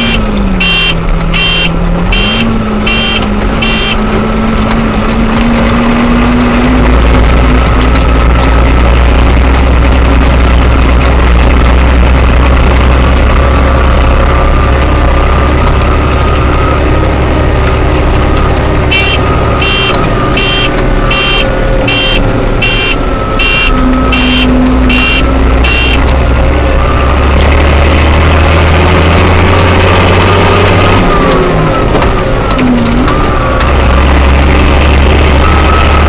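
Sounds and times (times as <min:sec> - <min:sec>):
cab beeper beeping: 0:00.0 - 0:04.3, 0:14.3 - 0:27.3
tractor diesel engine rumble: 0:00.0 - 0:36.0.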